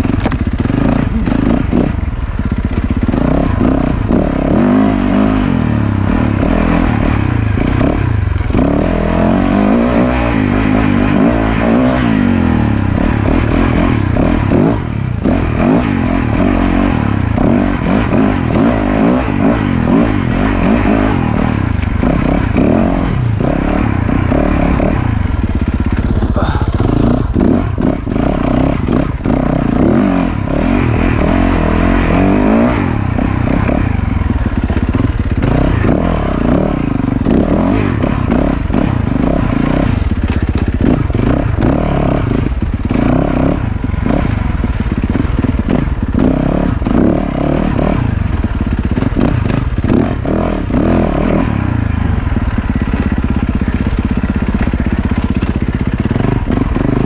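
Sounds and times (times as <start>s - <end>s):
motorcycle engine revving: 0.0s - 57.0s
bike knocking and clattering: 24.3s - 29.4s, 38.0s - 43.1s, 52.0s - 57.0s.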